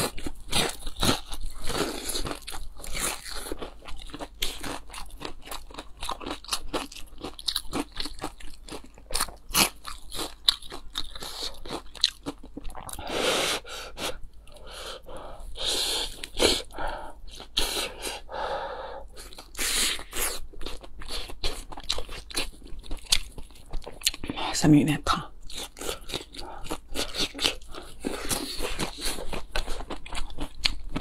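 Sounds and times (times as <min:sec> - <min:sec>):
crunching while chewing: 0:00.0 - 0:13.1, 0:19.1 - 0:24.4, 0:25.5 - 0:31.0.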